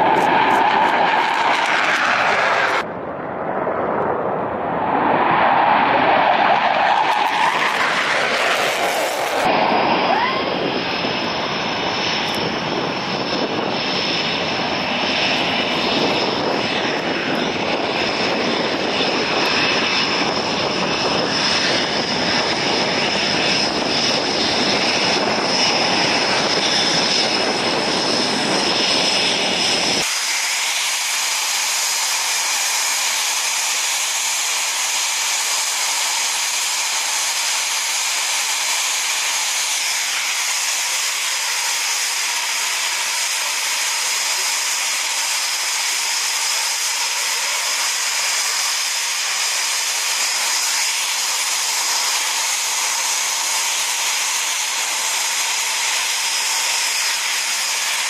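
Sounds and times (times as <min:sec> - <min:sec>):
jet engines running: 0:00.0 - 0:58.0.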